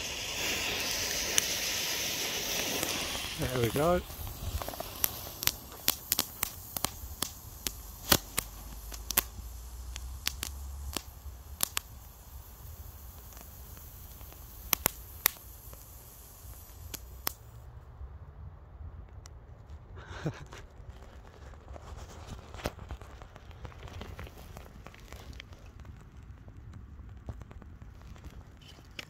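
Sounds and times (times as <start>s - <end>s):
firework fountains hissing: 0.0s - 17.7s
sharp crackling pops: 0.0s - 17.7s, 19.0s - 29.0s.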